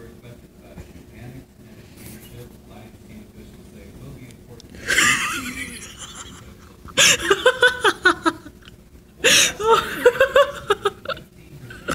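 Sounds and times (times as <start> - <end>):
high-pitched laughter: 4.9 - 8.6, 9.4 - 11.2.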